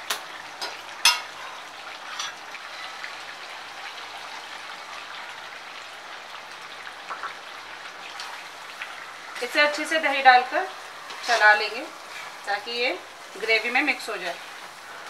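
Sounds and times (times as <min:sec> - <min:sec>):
food sizzling in a pan: 0:00.0 - 0:15.0
metal spoon clinking on pan: 0:01.0 - 0:01.3.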